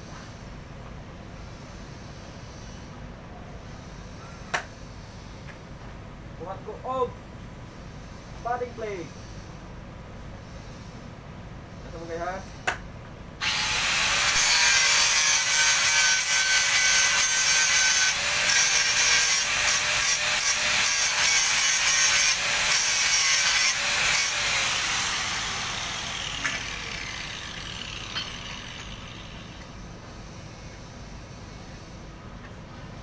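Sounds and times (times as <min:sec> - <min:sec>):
angle grinder grinding steel: 0:13.4 - 0:29.7.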